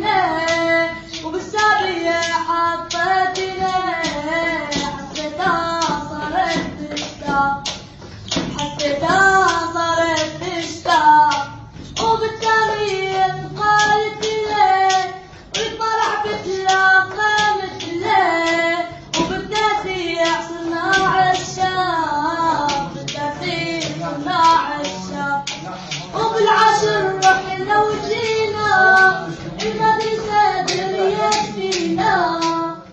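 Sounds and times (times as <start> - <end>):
person singing: 0.0 - 32.9
sharp claps beat: 0.0 - 32.9.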